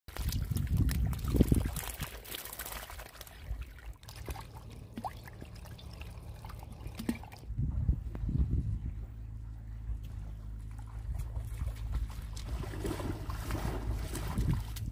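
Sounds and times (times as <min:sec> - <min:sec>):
small splashes and clicks: 0:00.1 - 0:07.5, 0:10.0 - 0:14.9
water trickling and gurgling: 0:00.1 - 0:07.5, 0:10.2 - 0:14.9
low rumble: 0:04.0 - 0:14.9.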